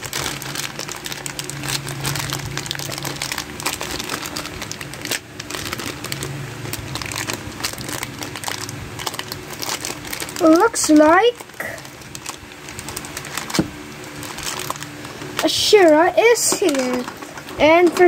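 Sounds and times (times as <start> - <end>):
plastic bag crinkling: 0.0 - 18.0.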